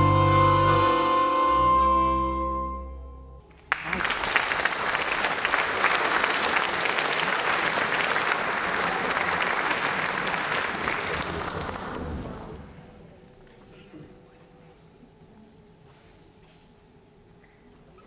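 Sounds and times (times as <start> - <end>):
harmonica ensemble chord: 0.0 - 3.5
audience applause: 3.6 - 12.9.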